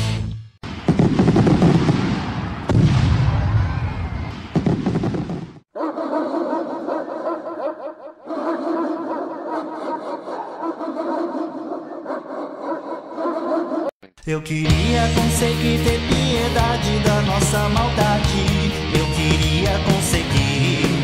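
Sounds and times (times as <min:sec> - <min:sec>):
rumbling explosion blast: 0:00.6 - 0:05.6.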